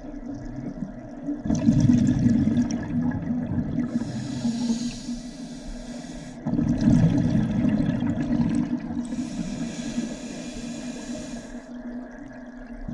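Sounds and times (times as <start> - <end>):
exhaled bubbles rushing underwater: 0.0 - 12.9
hissing inhale through regulator: 3.8 - 6.5, 9.0 - 11.8.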